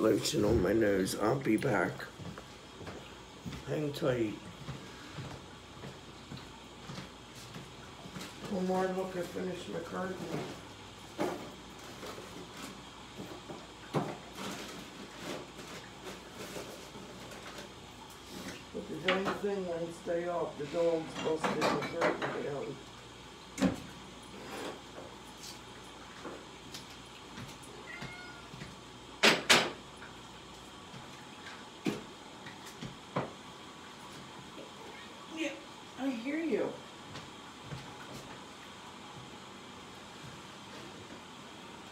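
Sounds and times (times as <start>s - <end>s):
low room hum: 0.0s - 41.9s.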